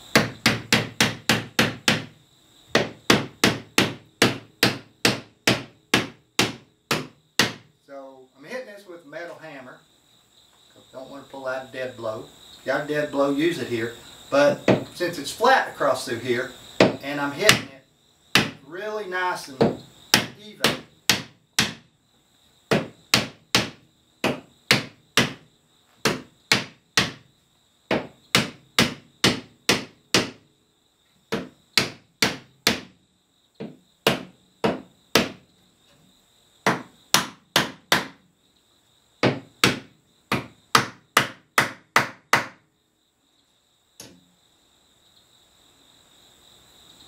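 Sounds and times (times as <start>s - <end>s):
insects chirring: 0.0s - 47.0s
hammer knocking on wood: 0.1s - 7.7s, 14.5s - 15.0s, 16.8s - 17.7s, 18.3s - 18.6s, 19.6s - 21.9s, 22.7s - 27.3s, 27.9s - 30.4s, 31.3s - 33.0s, 33.6s - 35.4s, 36.6s - 38.2s, 39.2s - 42.6s.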